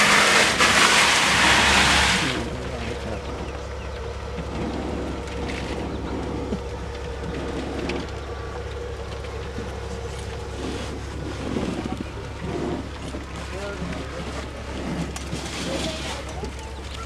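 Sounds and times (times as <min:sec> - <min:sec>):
vehicle engine idling: 0:00.0 - 0:17.0.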